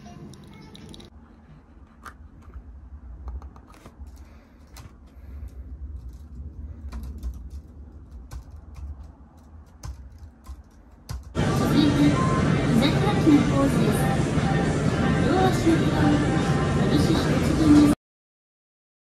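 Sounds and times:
keyboard typing: 0:03.3 - 0:11.4.

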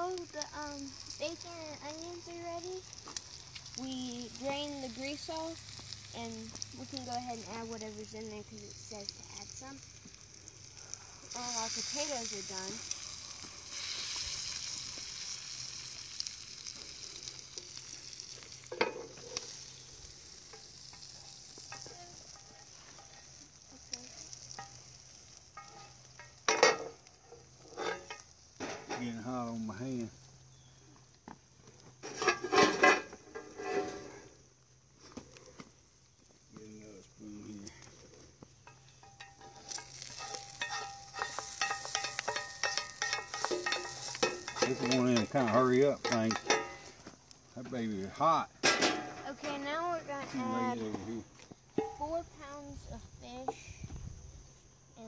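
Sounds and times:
bacon and onions sizzling: 0:00.0 - 0:55.0
metal utensils clicking on pan: 0:20.5 - 0:24.9, 0:25.5 - 0:27.0, 0:38.7 - 0:46.9
wooden spoon scraping metal pot: 0:32.0 - 0:34.3, 0:38.9 - 0:47.0.

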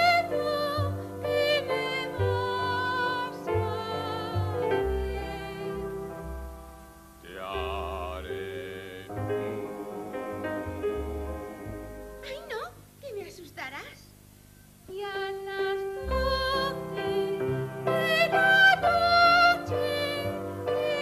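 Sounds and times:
woman singing operatically: 0:00.0 - 0:05.9, 0:14.9 - 0:21.0.

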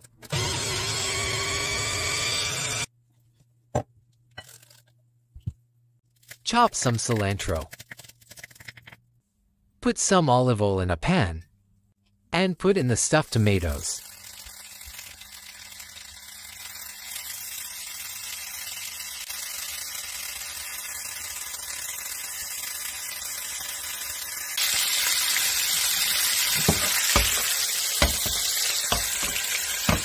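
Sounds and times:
oil sizzling in a pan: 0:14.0 - 0:30.0.

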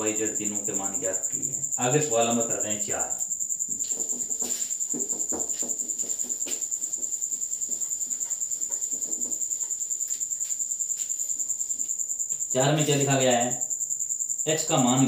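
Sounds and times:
cricket chirping: 0:00.0 - 0:15.0
duster wiping whiteboard: 0:03.8 - 0:11.9.

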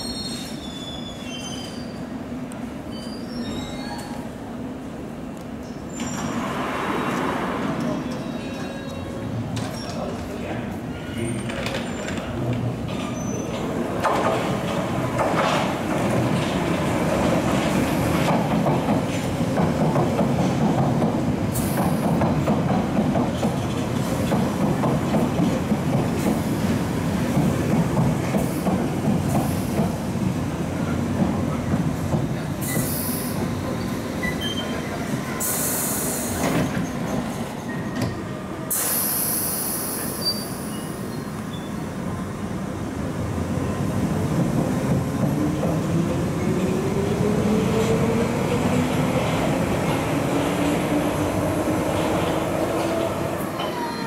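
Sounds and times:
train wheels rumbling on rail: 0:00.2 - 0:54.0
wheel squeal: 0:02.9 - 0:04.2
air hiss bursts: 0:38.7 - 0:40.2.

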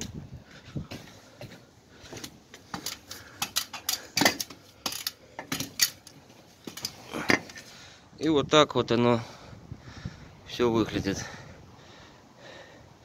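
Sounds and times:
climbing metal ladder clicks: 0:02.6 - 0:07.0.

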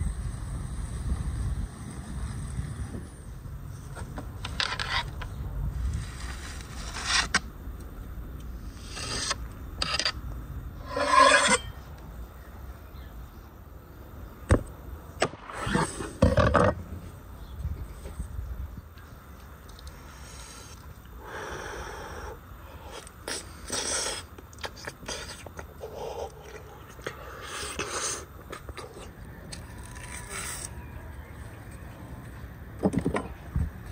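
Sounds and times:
bananas scraping off metal skewers: 0:04.4 - 0:07.5, 0:08.7 - 0:10.2, 0:10.8 - 0:11.8.

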